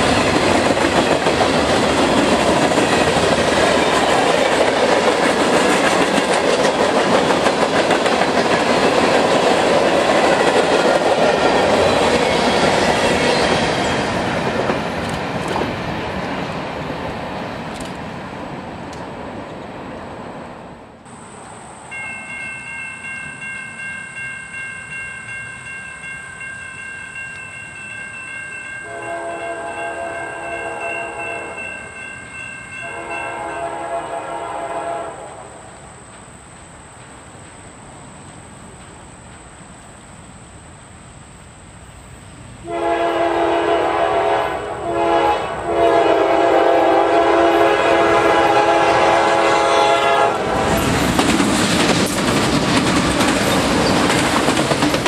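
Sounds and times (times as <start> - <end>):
crossing bell ringing: 21.2 - 34.2
locomotive air horn blasts: 28.8 - 31.6, 32.8 - 35.7, 42.6 - 50.7.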